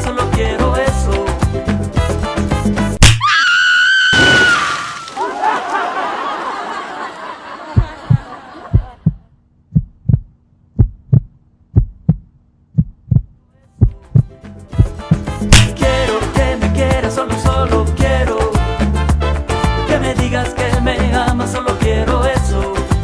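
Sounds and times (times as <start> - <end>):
heartbeat thumps: 7.7 - 15.9.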